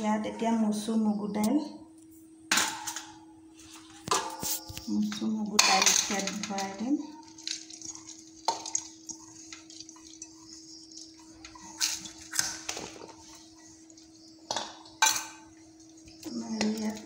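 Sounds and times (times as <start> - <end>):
steady low hum: 0.0 - 17.0
lentils pouring: 5.8 - 13.3.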